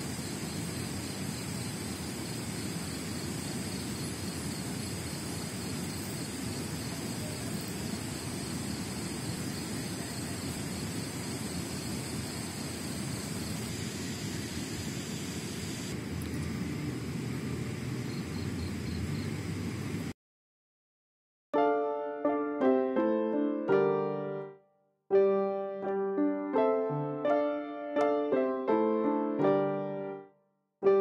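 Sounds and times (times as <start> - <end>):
insect chorus: 0.0 - 20.0.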